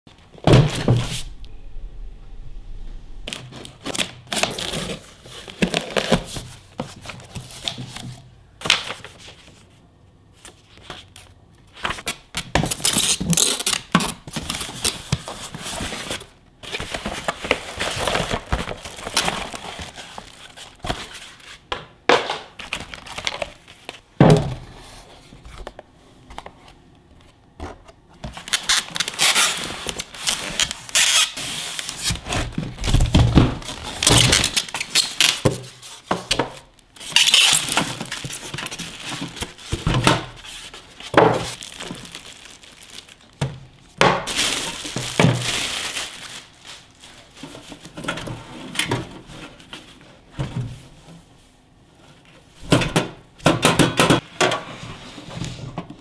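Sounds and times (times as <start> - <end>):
tape tearing: 12.0 - 14.2, 28.4 - 33.0, 33.7 - 35.4, 37.0 - 39.5
plastic wrapping crinkling: 12.7 - 21.6, 28.3 - 48.0.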